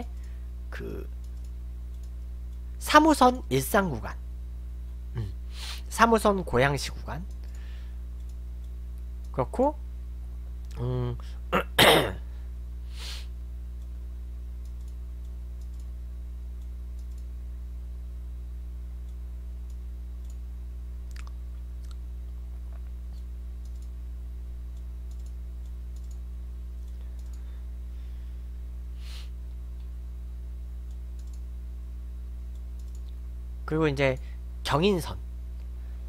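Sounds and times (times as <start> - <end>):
low electrical hum: 0.0 - 36.0
faint clicks: 1.2 - 2.7, 8.2 - 9.4, 14.6 - 15.9, 16.6 - 17.3, 19.0 - 20.4, 22.7 - 24.0, 24.7 - 26.2, 26.8 - 27.5, 30.8 - 31.5, 32.5 - 33.2.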